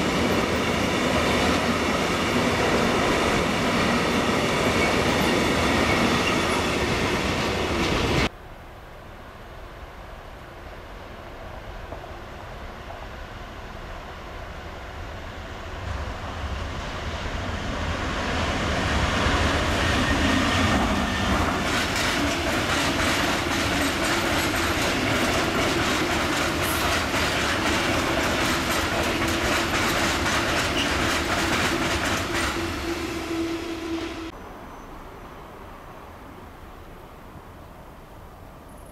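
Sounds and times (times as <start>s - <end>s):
freight train passing: 0.0s - 38.9s
wheel clatter over rail joints: 20.2s - 33.2s.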